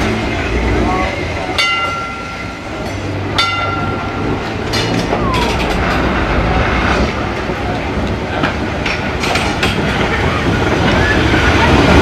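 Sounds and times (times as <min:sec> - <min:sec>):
tram rumbling on track: 0:00.0 - 0:12.0
tram bell ding: 0:01.5 - 0:06.1.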